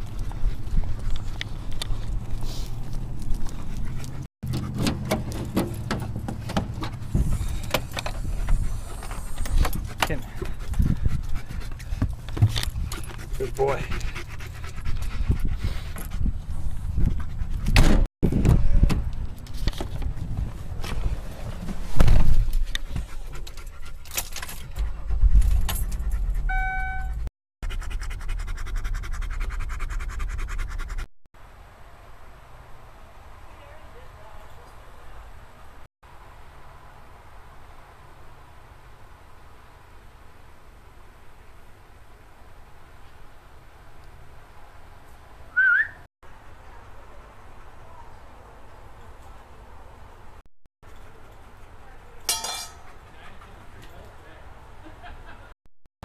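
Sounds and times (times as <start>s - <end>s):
dog panting: 0.1s - 4.8s, 7.2s - 17.7s, 52.8s - 54.1s
handling noise: 1.1s - 10.9s
wind rumble: 5.0s - 23.8s
short chime: 26.5s - 27.2s.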